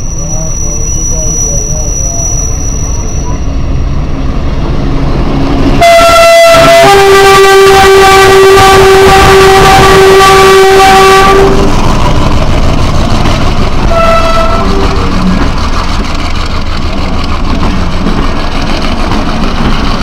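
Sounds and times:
vehicle air horn blowing: 5.8s - 11.7s, 13.9s - 14.8s.

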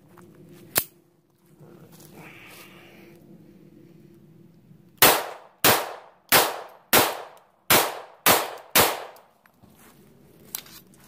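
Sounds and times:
pistol shots: 5.0s - 9.3s.

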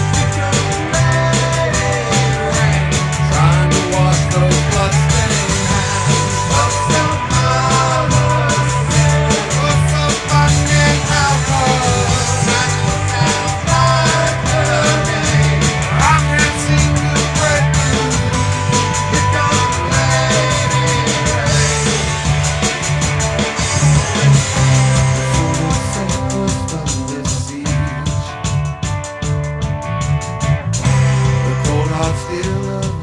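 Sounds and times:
guitar rising slide: 0.0s - 26.2s
rock band playing: 0.0s - 33.0s.

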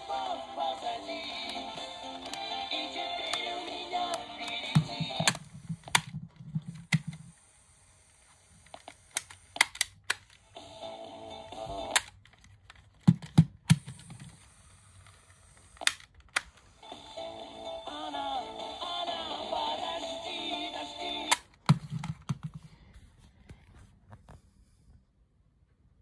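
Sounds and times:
music from small speakers: 0.0s - 5.4s, 16.8s - 21.3s
cassette player keys clicking: 1.2s - 6.1s.

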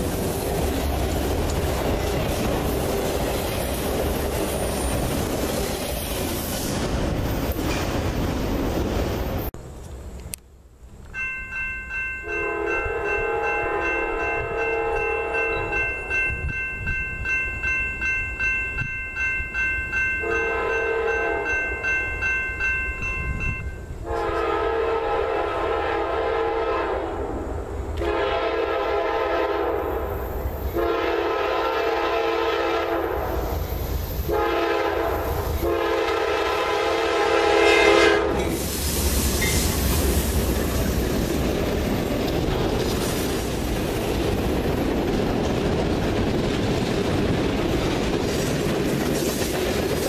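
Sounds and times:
crossing bell ringing: 11.0s - 24.0s, 39.4s - 41.0s
train air horn blasts: 12.2s - 15.7s, 20.2s - 21.6s, 24.0s - 30.1s, 30.8s - 33.5s, 34.2s - 39.7s
locomotive engines rumbling: 23.0s - 50.0s.

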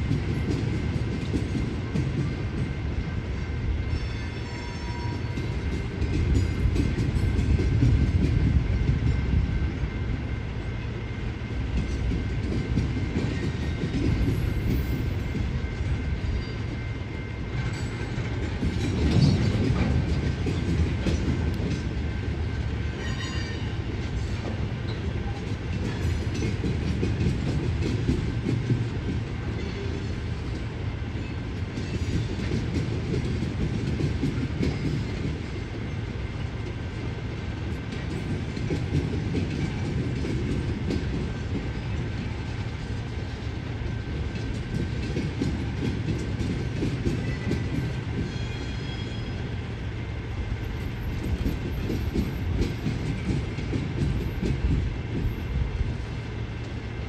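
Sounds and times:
freight train rumbling: 0.0s - 57.0s
wheel clatter on rails: 17.5s - 22.0s, 50.6s - 55.5s.

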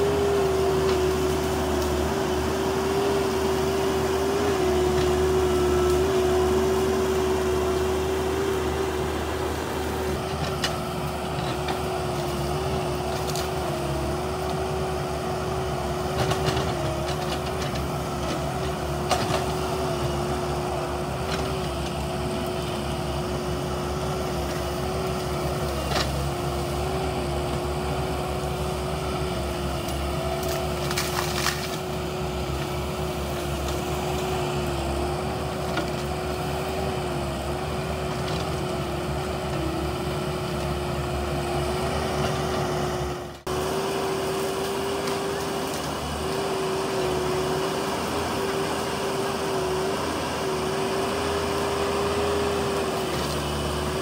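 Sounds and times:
bulldozer diesel engine running: 0.0s - 54.0s.

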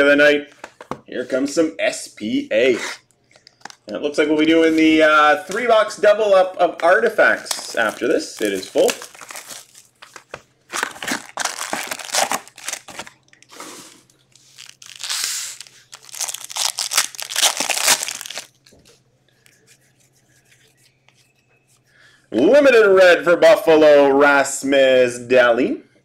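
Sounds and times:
plastic wrapping tearing and crinkling: 6.8s - 13.6s, 14.3s - 18.6s.

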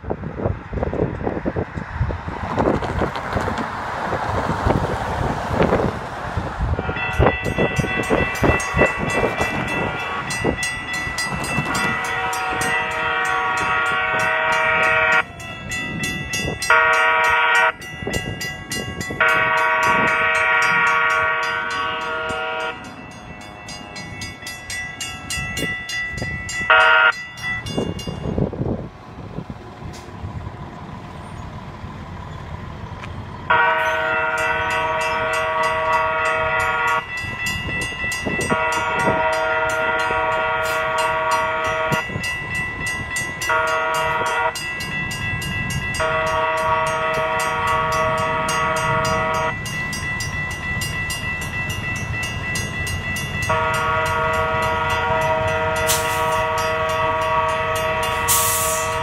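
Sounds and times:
road rumble: 0.0s - 59.0s
wind: 0.0s - 59.0s
crossing bell ringing rapidly: 6.7s - 28.6s, 33.5s - 59.0s
multi-chime horn blasts: 6.8s - 27.9s, 33.5s - 59.0s.

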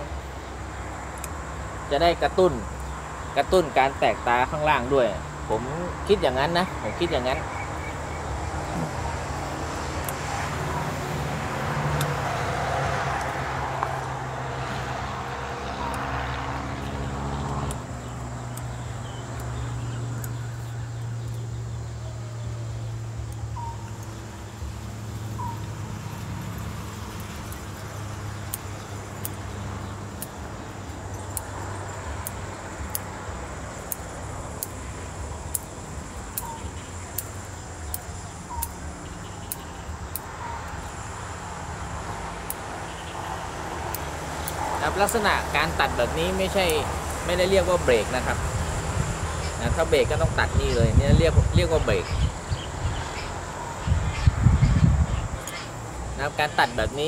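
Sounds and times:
engine humming: 0.0s - 57.0s
bird chirps: 6.6s - 9.6s, 16.8s - 33.0s, 35.3s - 41.2s.

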